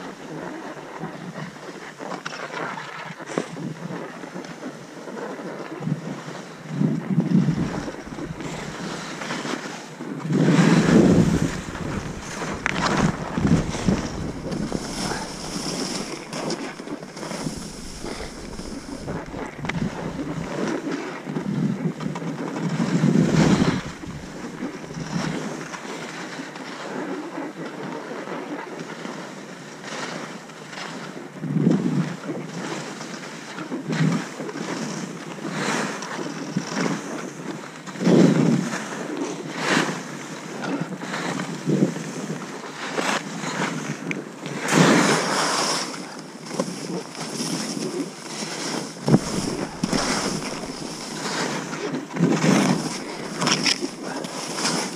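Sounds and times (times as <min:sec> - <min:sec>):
wind on microphone: 0:05.8 - 0:26.4, 0:43.3 - 0:54.9
skis scraping over snow: 0:07.0 - 0:22.0, 0:22.6 - 0:26.8, 0:44.6 - 0:54.9.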